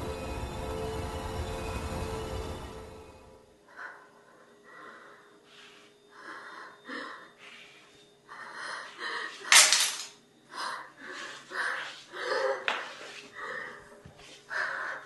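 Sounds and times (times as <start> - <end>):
woman breathing heavily: 3.6 - 9.6, 10.4 - 15.0.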